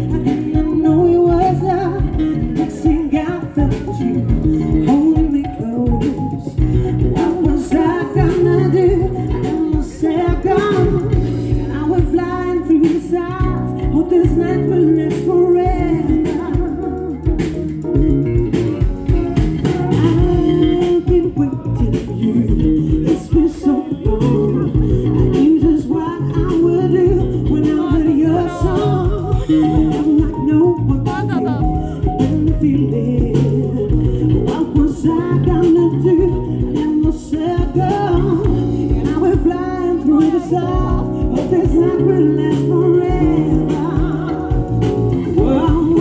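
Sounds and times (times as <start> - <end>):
drums: 0.0 - 46.0
live pop band: 0.0 - 46.0
person singing into microphone: 0.0 - 46.0.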